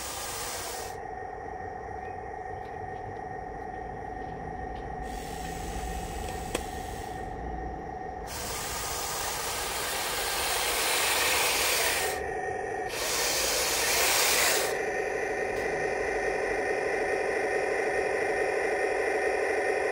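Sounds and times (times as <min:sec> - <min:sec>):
hissing: 0:00.0 - 0:01.0, 0:08.3 - 0:12.3, 0:12.9 - 0:14.9
model tank whirring drone: 0:00.0 - 0:01.0, 0:08.2 - 0:16.4.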